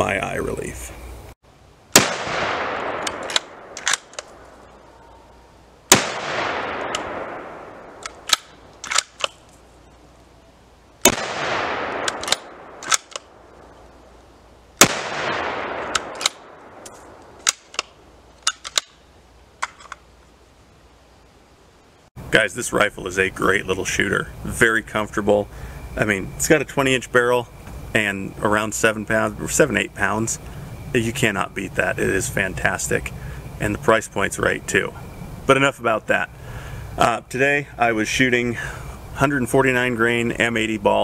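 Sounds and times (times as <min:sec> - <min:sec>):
rifle shots echoing: 0:01.9 - 0:04.5, 0:05.9 - 0:09.3, 0:11.0 - 0:13.6, 0:14.8 - 0:17.8
rifle bolt clicking: 0:03.0 - 0:04.3, 0:08.0 - 0:09.4, 0:12.0 - 0:13.3, 0:15.9 - 0:19.0.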